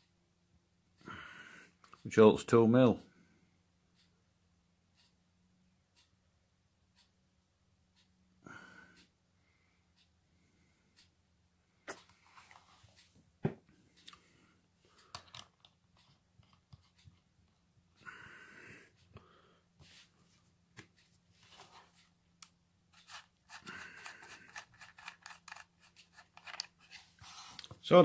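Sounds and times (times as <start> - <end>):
hands clicking and tapping metal parts: 23.0 - 26.8.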